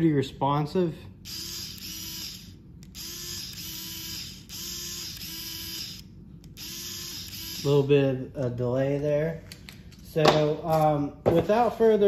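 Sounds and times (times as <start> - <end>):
cordless screwdriver motor whirring: 1.3 - 7.8.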